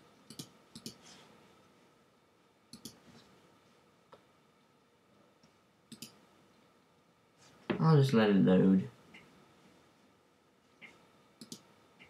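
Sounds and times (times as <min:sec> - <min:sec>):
faint computer clicks: 0:00.3 - 0:01.0, 0:02.7 - 0:03.0, 0:05.9 - 0:06.2, 0:10.8 - 0:12.0.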